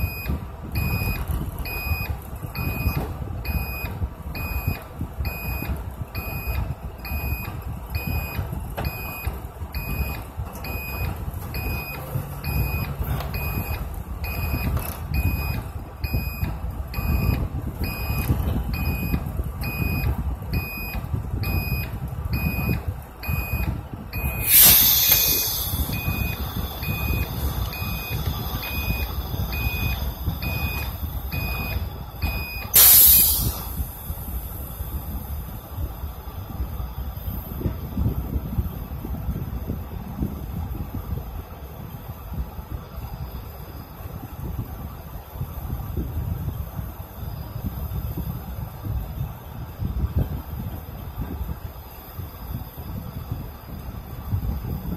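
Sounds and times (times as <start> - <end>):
large engine idling: 0.0 - 49.8
reversing beeper: 21.5 - 33.9
air brake hisses: 24.4 - 31.2, 32.7 - 34.4.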